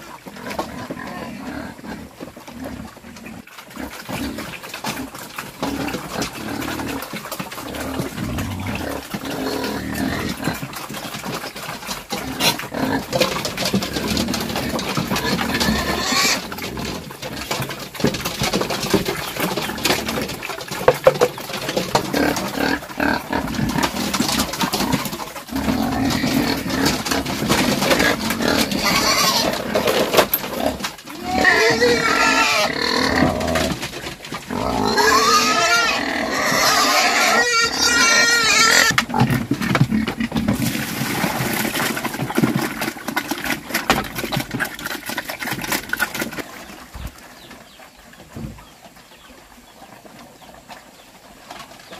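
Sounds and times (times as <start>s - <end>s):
pigs squealing and grunting: 0.0s - 48.6s.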